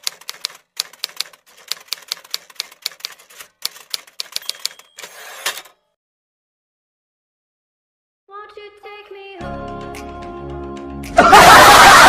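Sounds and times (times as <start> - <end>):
typewriter key strikes: 0.0 - 5.1
typewriter carriage return: 0.0 - 5.8
typewriter bell ringing: 3.8 - 5.7.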